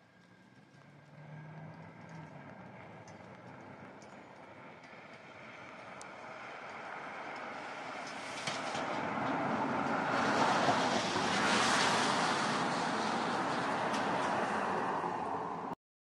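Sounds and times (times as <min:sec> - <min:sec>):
tyres hissing on wet road: 0:06.2 - 0:15.8.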